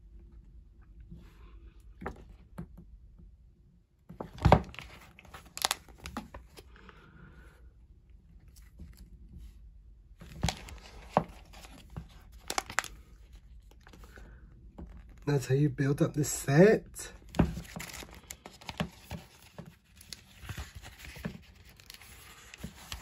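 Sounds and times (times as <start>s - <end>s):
paper pages turning: 4.4s - 6.6s, 10.2s - 14.2s, 17.2s - 23.0s.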